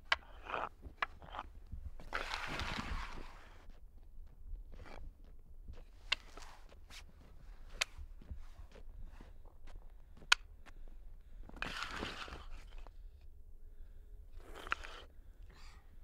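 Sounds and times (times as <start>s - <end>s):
wooden blocks scraping on asphalt: 0.1s - 3.8s, 11.6s - 12.9s.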